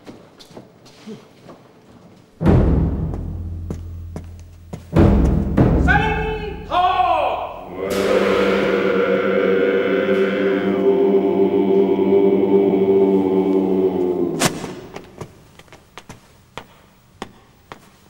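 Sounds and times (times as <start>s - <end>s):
sharp knock: 2.4s - 6.2s, 7.8s - 9.3s
men chanting in unison: 7.1s - 15.0s.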